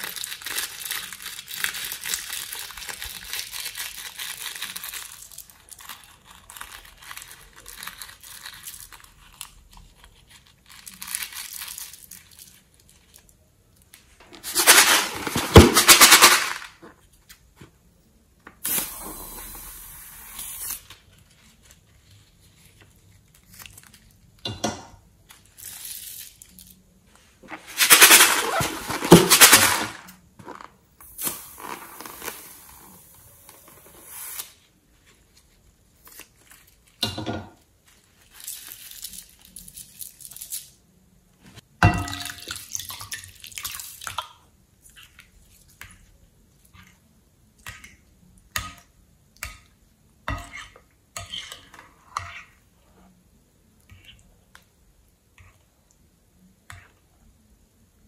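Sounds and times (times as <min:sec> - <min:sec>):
glitter rattling from plastic tubes: 0:14.4 - 0:16.8.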